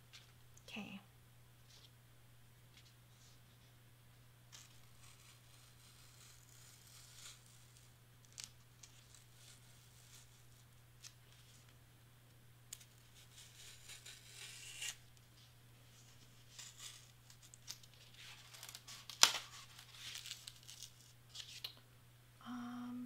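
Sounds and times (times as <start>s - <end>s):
knife scratching through cardstock: 4.6s - 7.9s, 12.8s - 15.0s, 16.4s - 20.8s.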